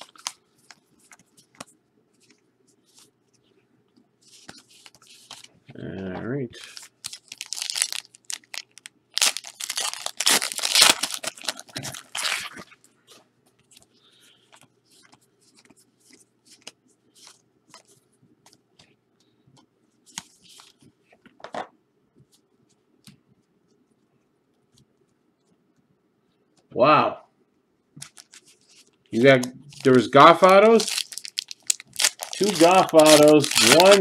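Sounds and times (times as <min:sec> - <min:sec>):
card pack tearing: 0:06.6 - 0:12.6, 0:29.4 - 0:34.0.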